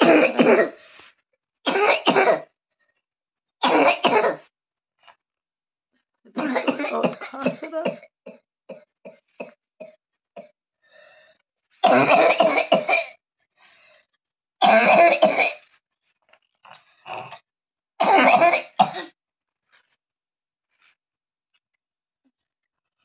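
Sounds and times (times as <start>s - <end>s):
boy's dry cough: 0.0s - 0.8s, 1.7s - 2.4s, 3.6s - 4.4s, 6.4s - 8.0s, 11.9s - 13.1s.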